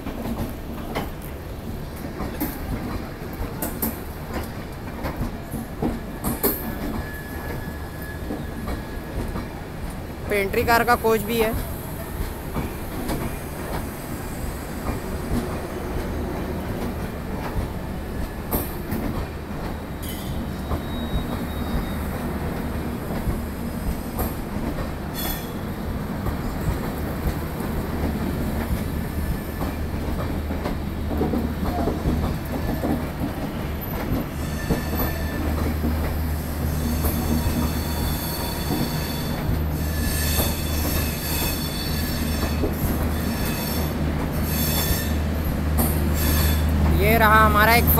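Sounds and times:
train wheels rumbling on rails: 0.0 - 47.9
high wheel squeal: 6.3 - 9.2, 20.0 - 22.2, 33.7 - 35.8, 36.4 - 45.3, 46.2 - 46.7.

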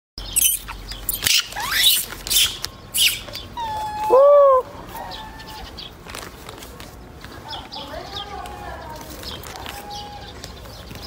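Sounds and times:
macaque calling: 0.4 - 5.7.

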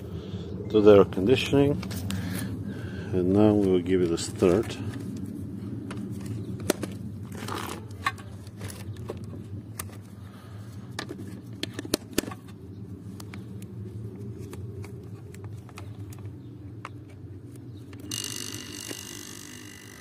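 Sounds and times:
compressor humming: 14.5 - 20.0.

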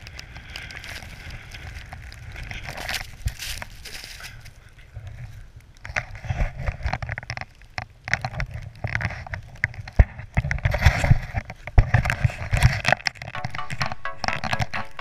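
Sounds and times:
clothing and snow rustling: 0.0 - 5.4
background music: 13.4 - 15.0.

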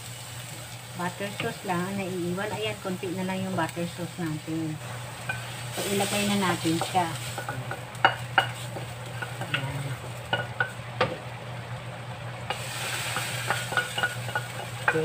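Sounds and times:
chicken sizzling: 0.0 - 15.0
utensil scraping frying pan: 4.8 - 10.8, 12.5 - 15.0.

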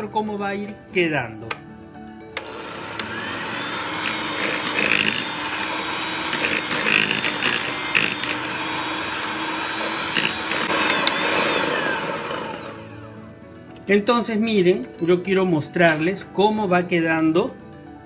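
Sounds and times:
electric hand mixer running: 2.4 - 13.3.

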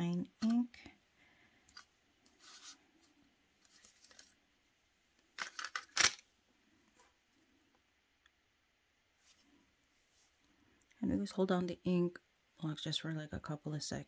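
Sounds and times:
faint rustling: 0.8 - 4.4.

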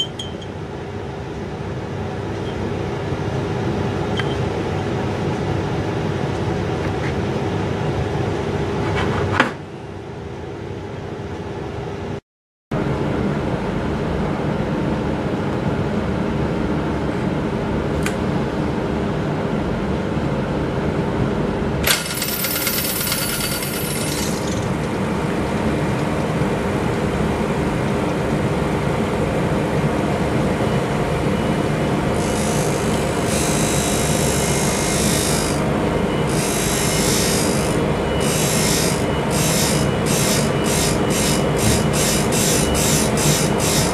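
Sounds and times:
grinding machine motor hum: 31.5 - 43.9.

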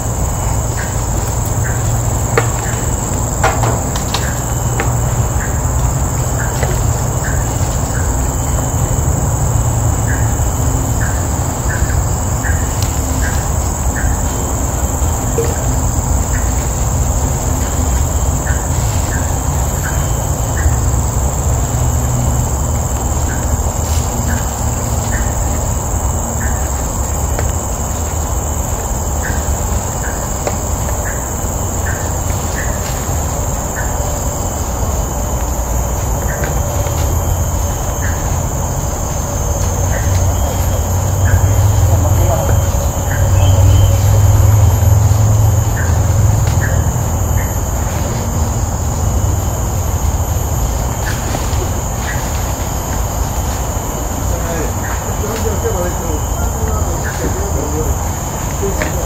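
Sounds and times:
high-pitched insect drone: 0.0 - 59.0
steady low rumble: 0.0 - 59.0.

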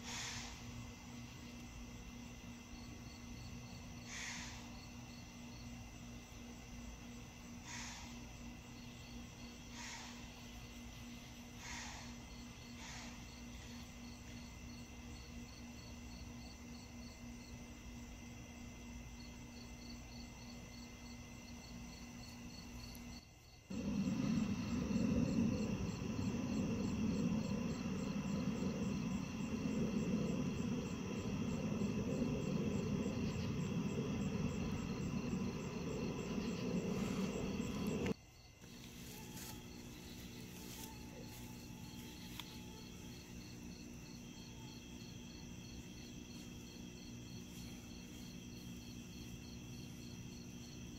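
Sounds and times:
crickets chirping: 0.0 - 50.9
loud low rough noise: 23.7 - 38.2.

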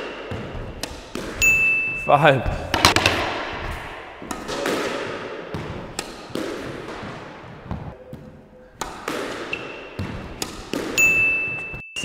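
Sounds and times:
squash ball knocking on walls: 2.4 - 11.8.

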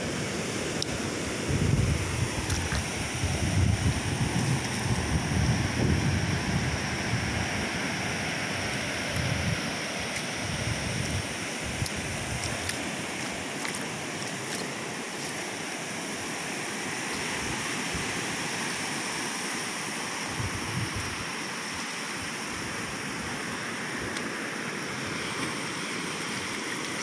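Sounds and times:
wind buffeting microphone: 1.4 - 12.8, 20.3 - 21.3.

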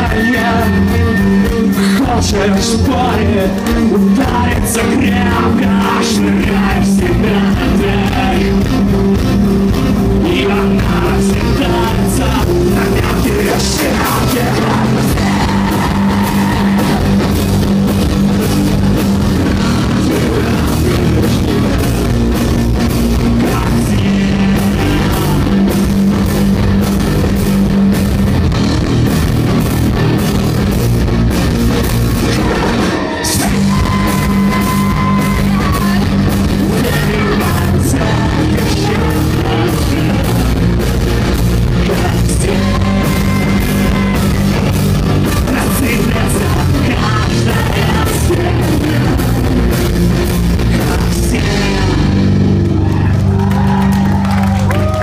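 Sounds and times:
man singing: 0.0 - 8.8, 10.0 - 17.1, 19.4 - 22.4, 23.1 - 25.9, 32.2 - 41.0, 41.6 - 52.5
live rock band playing: 0.0 - 55.0.

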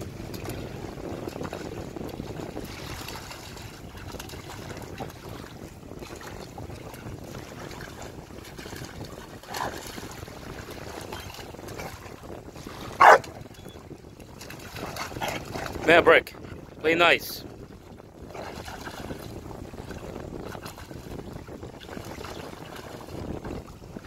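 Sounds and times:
water splashing: 0.0 - 24.0
wind on microphone: 0.0 - 24.0
dog barking: 13.0 - 13.3.

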